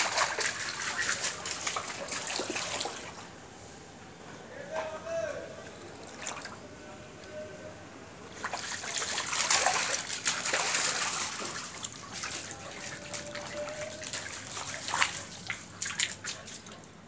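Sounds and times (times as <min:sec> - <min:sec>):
water splashing on tiled floor: 0:00.0 - 0:03.4, 0:05.9 - 0:06.6, 0:08.3 - 0:17.0.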